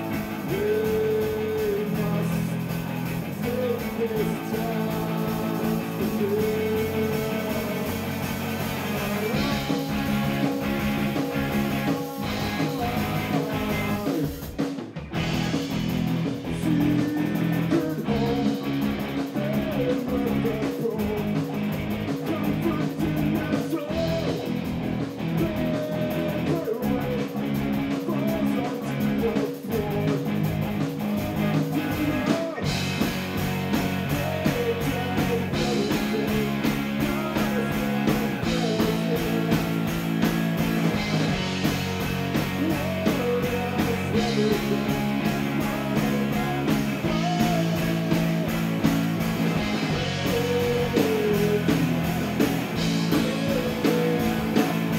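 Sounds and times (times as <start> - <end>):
live rock band playing: 0.0 - 54.9.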